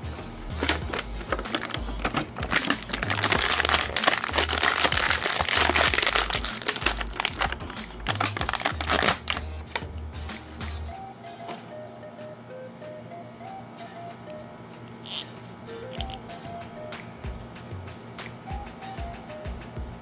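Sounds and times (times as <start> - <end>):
background music: 0.0 - 20.0
plastic packaging crinkling: 0.6 - 9.8.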